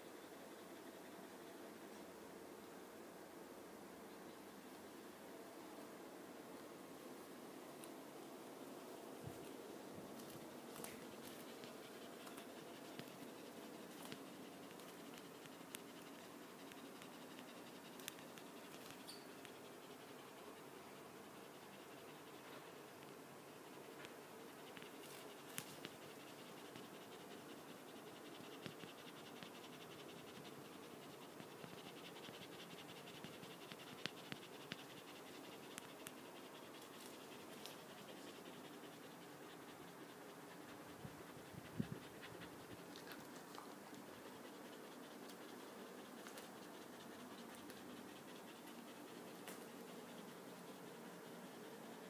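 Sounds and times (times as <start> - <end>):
puppy scratching and rustling: 9.2 - 20.0, 24.0 - 52.0.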